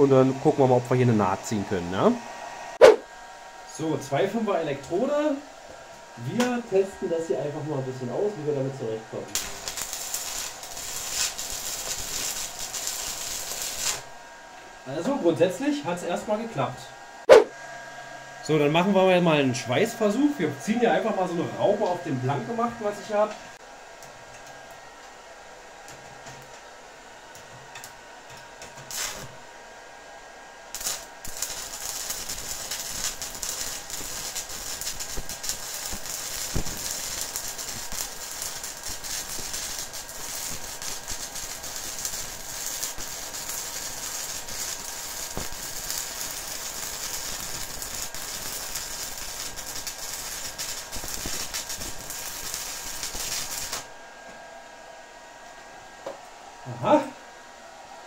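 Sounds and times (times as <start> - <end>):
welding arc crackling sizzle: 0.0 - 2.2, 3.7 - 14.2, 27.3 - 29.5, 30.6 - 54.0.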